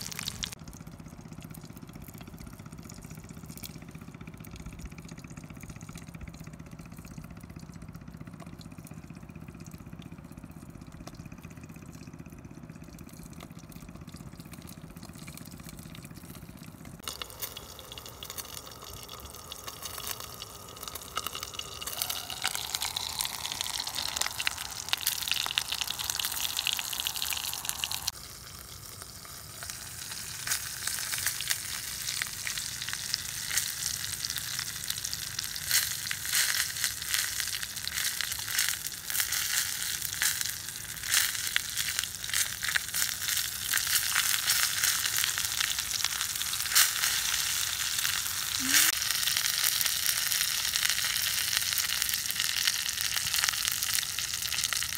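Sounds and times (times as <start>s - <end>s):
eggs sizzling in oil: 0.0s - 0.6s, 17.0s - 54.9s
oil spitting crackles: 0.0s - 54.9s.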